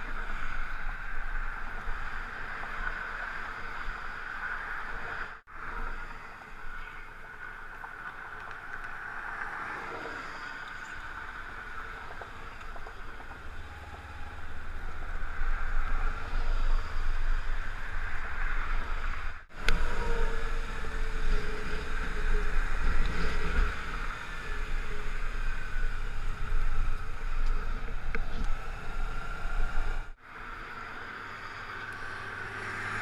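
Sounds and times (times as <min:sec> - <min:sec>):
wind rumbling on microphone: 0:00.0 - 0:33.0
highway traffic rushing past: 0:11.1 - 0:33.0.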